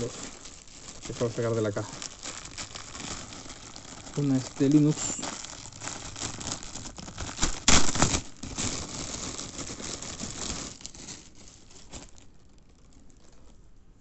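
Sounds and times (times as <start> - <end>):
plastic bag crinkling: 0.0 - 13.8.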